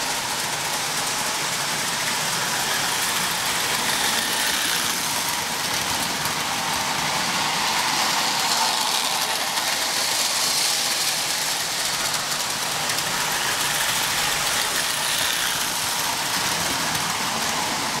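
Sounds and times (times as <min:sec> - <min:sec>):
electric motors: 0:00.0 - 0:18.0
toy train wheels whirring on rails: 0:00.0 - 0:18.0.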